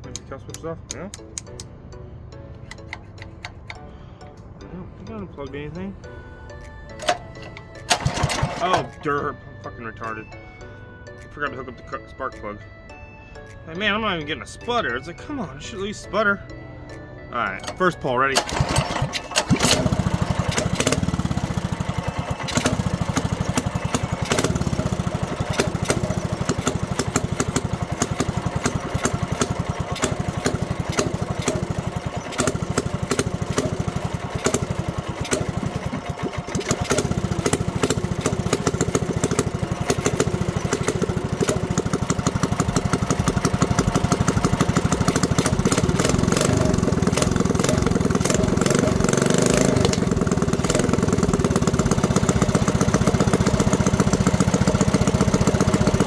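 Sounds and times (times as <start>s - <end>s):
mini bike engine running: 7.9s - 8.9s, 18.4s - 56.0s.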